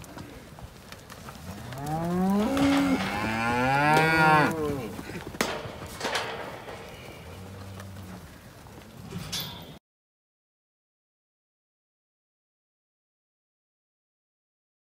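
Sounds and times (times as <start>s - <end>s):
cow mooing: 1.6s - 5.0s, 6.8s - 8.3s.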